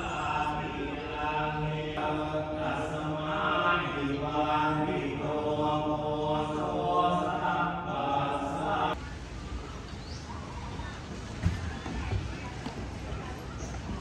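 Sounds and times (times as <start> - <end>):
voices chanting in held tones: 0.0 - 9.0.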